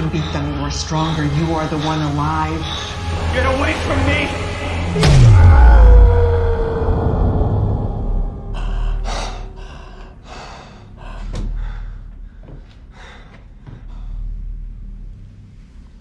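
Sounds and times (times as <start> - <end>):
low rumble: 0.0 - 16.0
person gasping breaths: 8.4 - 14.4.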